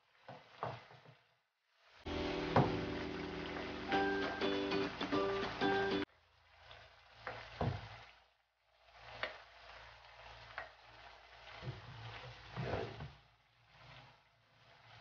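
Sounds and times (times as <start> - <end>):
faint simmering hiss: 1.8 - 15.0
spatula scraping a frying pan: 8.9 - 15.0.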